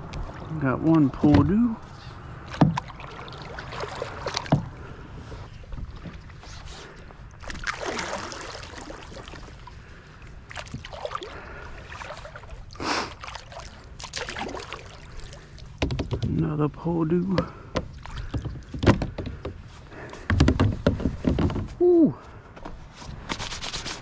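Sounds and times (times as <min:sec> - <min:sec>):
kayak paddle splashing water: 0:00.0 - 0:21.7
sharp knocks: 0:15.8 - 0:16.4.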